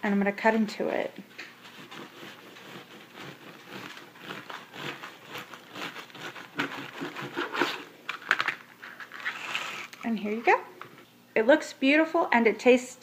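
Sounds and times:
bread knife sawing through crust: 0:01.6 - 0:07.8.

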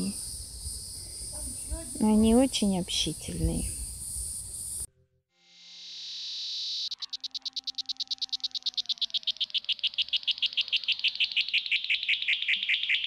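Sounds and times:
cicada singing: 0:00.0 - 0:13.0.

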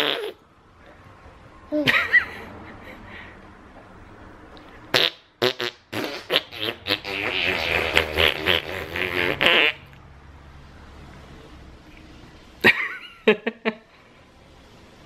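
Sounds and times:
buzzing raspberry: 0:00.0 - 0:00.4, 0:04.9 - 0:09.9.

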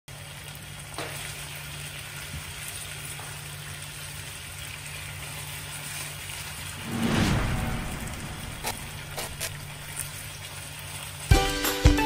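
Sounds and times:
chicken sizzling in a frying pan: 0:00.1 - 0:06.7
low steady hum: 0:06.8 - 0:10.8.

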